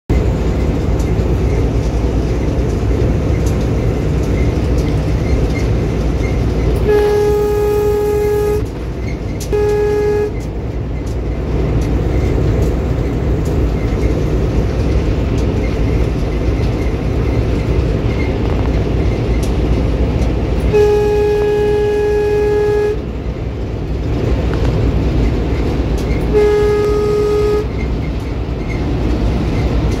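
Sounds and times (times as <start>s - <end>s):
locomotive rumble from cab: 0.1s - 30.0s
locomotive horn blasts: 6.7s - 10.6s, 20.6s - 23.2s, 26.1s - 27.9s.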